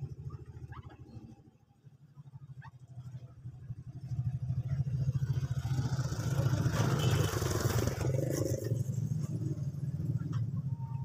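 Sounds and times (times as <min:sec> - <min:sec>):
motorcycle passing: 0:03.8 - 0:10.6.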